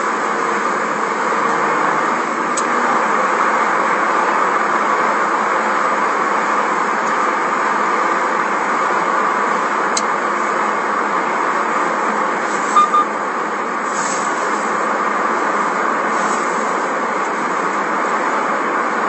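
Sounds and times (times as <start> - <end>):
car road and engine noise: 0.0 - 19.0
speech: 1.4 - 3.5
short high beeps: 12.7 - 13.1.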